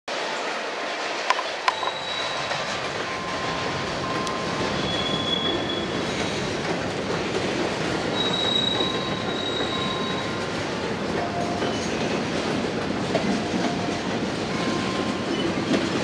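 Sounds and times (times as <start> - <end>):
train wheels rolling on rail: 0.1 - 16.0
high-pitched wheel squeals: 1.7 - 6.4, 8.1 - 10.4.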